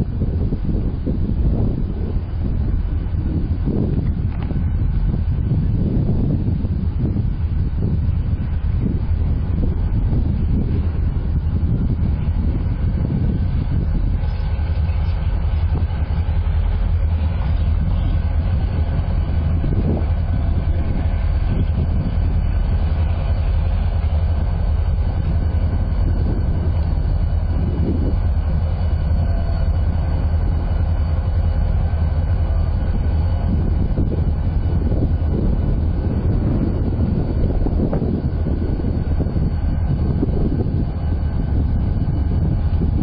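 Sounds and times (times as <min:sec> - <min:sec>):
diesel locomotive engine rumble: 0:00.0 - 0:43.0.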